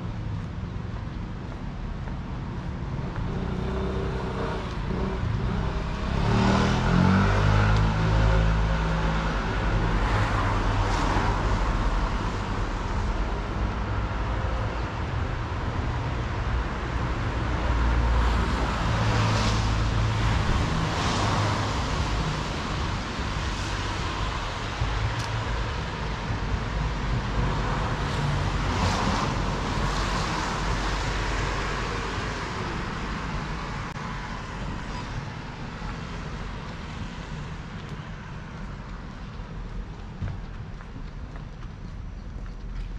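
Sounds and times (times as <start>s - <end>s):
cars driving past: 2.8s - 40.6s.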